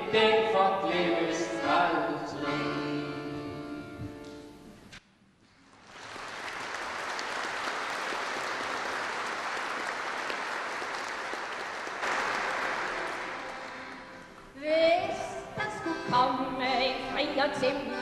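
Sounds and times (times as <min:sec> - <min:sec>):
audience applauding: 0:05.6 - 0:14.4.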